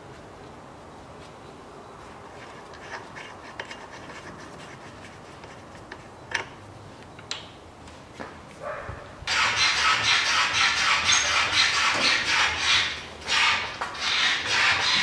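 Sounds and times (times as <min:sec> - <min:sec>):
gloved hands rubbing and scraping: 0:02.1 - 0:06.2, 0:09.7 - 0:15.0.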